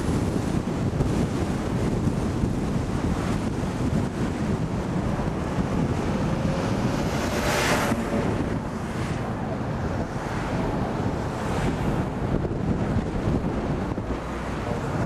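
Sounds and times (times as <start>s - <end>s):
road and wind noise in car: 0.0s - 15.0s
car passing close by: 4.0s - 15.0s.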